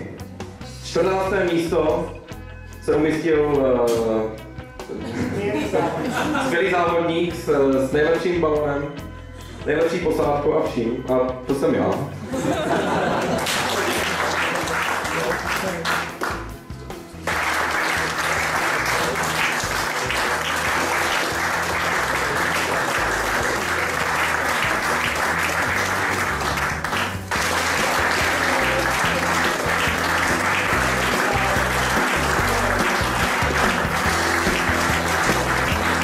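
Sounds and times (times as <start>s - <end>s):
background music: 0.0s - 36.0s
audience applauding: 13.0s - 16.5s, 17.2s - 36.0s.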